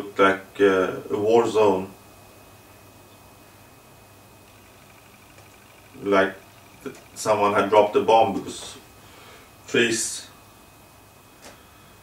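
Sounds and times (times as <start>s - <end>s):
low hiss: 0.0s - 12.0s
thin high whine: 2.6s - 10.4s.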